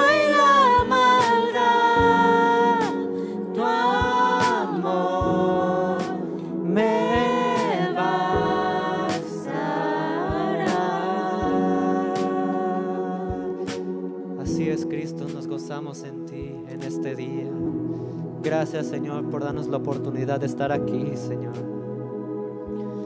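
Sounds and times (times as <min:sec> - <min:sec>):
voices singing worship song: 0:00.0 - 0:23.0.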